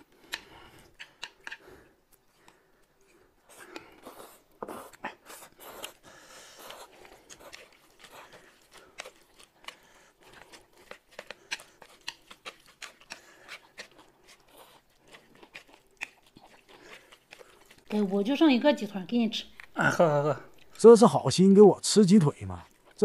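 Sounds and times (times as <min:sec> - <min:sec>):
noodles slurped and chewed: 0:00.0 - 0:21.2, 0:21.8 - 0:23.0
chopsticks clicking on plates: 0:00.2 - 0:01.6.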